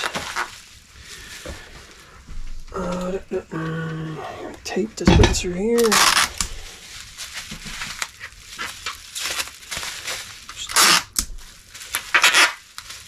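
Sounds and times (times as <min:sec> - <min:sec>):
packing tape rasp: 0:00.0 - 0:01.5, 0:05.8 - 0:13.0
bubble wrap crinkles: 0:00.0 - 0:04.8, 0:05.4 - 0:13.0.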